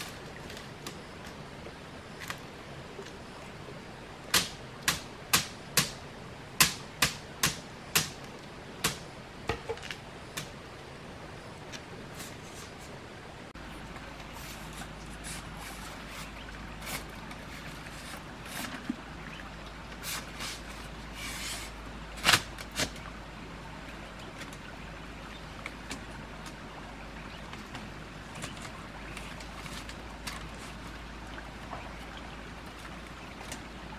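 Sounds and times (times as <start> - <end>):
stream water hissing: 10.4 - 33.9.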